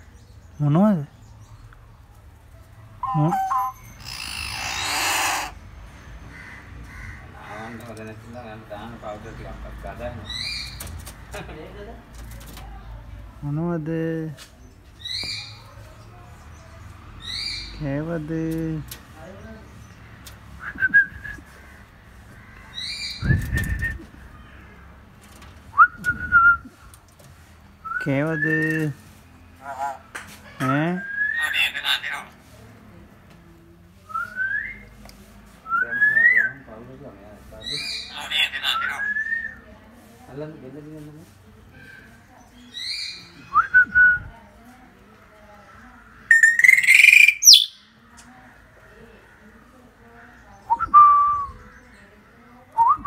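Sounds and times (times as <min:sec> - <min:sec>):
myna bird whistling: 0:03.0 - 0:05.6, 0:46.3 - 0:47.9.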